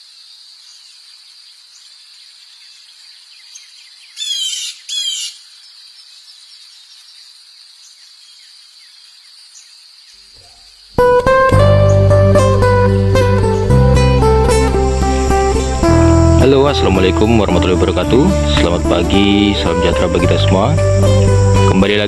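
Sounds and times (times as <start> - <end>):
bird calling: 1.7 - 10.9, 18.6 - 21.9
acoustic guitar music: 11.0 - 22.0
high-pitched insect drone: 13.7 - 22.0.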